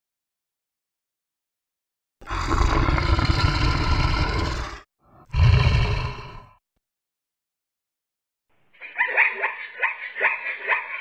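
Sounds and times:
lion roaring: 0:02.2 - 0:06.6.

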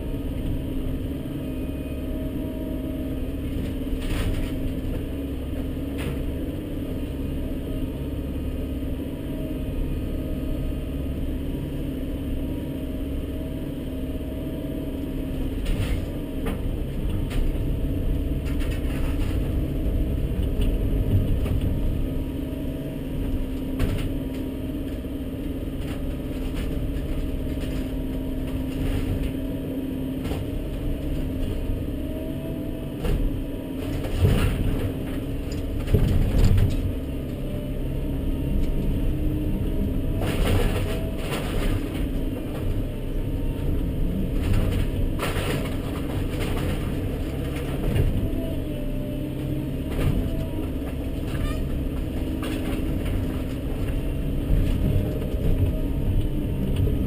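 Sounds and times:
excavator engine running: 0:00.0 - 0:57.0
wood cracking and clattering: 0:44.3 - 0:48.4.

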